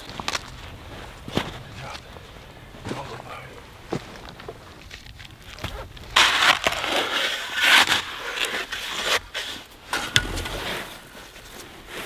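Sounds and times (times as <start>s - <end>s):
spade crunching into wet sand: 9.9s - 11.1s.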